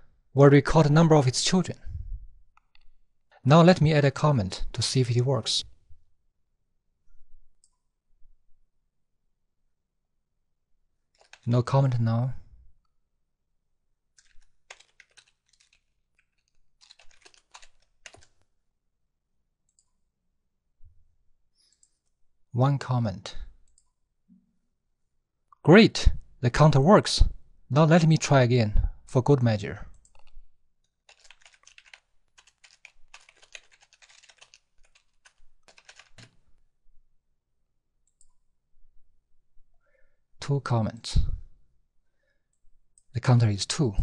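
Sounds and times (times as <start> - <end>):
keyboard typing keystrokes: 11.2 - 11.5, 14.2 - 18.5, 31.1 - 36.4.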